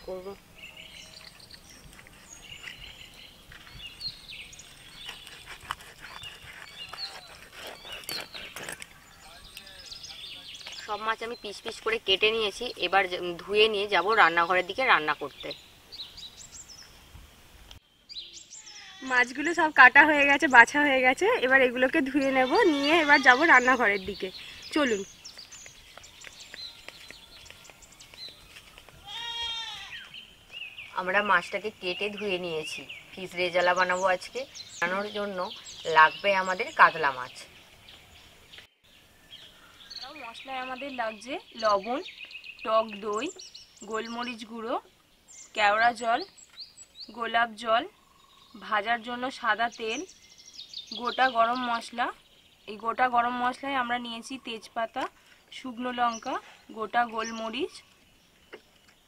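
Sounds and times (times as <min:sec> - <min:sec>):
small birds chirping: 0:00.0 - 0:59.0
goat bleating: 0:18.6 - 0:19.1, 0:29.0 - 0:30.1.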